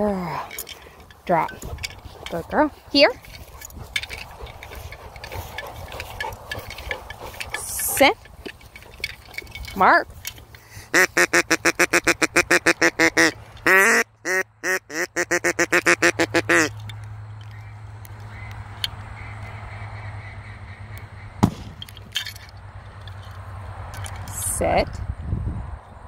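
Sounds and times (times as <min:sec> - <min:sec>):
duck call quacking: 0:10.8 - 0:16.8.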